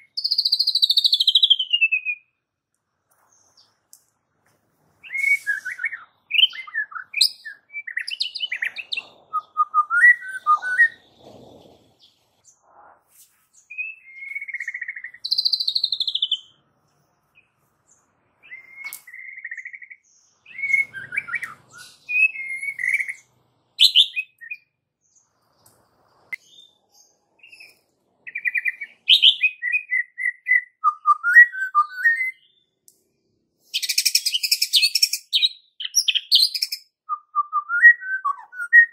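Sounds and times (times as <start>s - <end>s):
bird singing whistles and trills: 0.0s - 2.4s, 5.0s - 12.1s, 13.7s - 16.6s, 18.4s - 24.8s, 27.4s - 32.8s, 33.6s - 38.9s.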